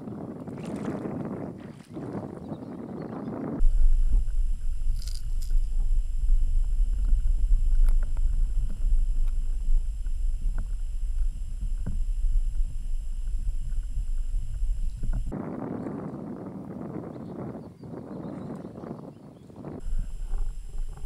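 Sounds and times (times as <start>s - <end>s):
thin electronic whine: 3.4s - 15.7s, 19.7s - 21.0s
open-air noise: 3.4s - 18.1s, 19.5s - 21.0s
underwater water rumble: 3.6s - 15.4s, 19.8s - 21.0s
faint clicks: 4.0s - 15.3s.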